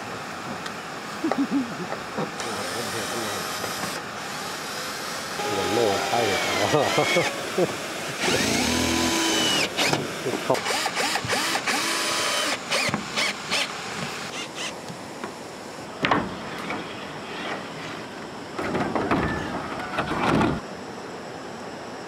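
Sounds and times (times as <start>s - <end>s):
power drill whining: 2.4s - 7.5s, 8.2s - 10.0s, 10.6s - 14.7s.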